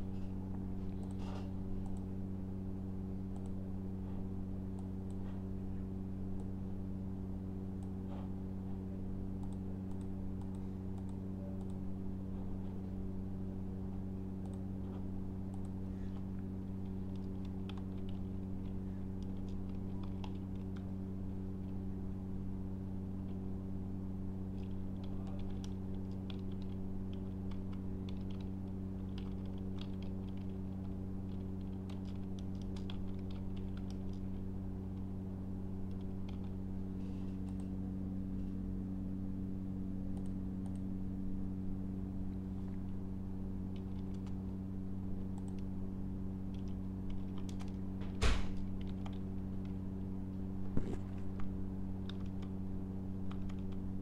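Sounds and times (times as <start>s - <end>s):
low electrical hum: 0.0s - 54.0s
keyboard typing: 24.6s - 34.3s.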